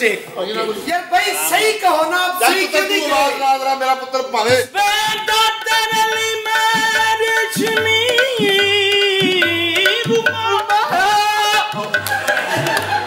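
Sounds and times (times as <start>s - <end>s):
hand drum beat: 4.5s - 13.0s
man singing long notes: 5.0s - 12.0s.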